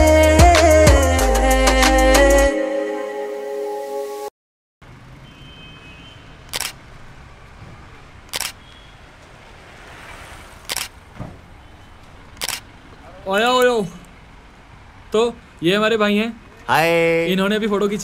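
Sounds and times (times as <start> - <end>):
steady outdoor hiss: 5.0 - 18.0
camera shutter clicking: 6.5 - 6.8, 8.3 - 8.7, 10.7 - 10.9, 12.4 - 12.6.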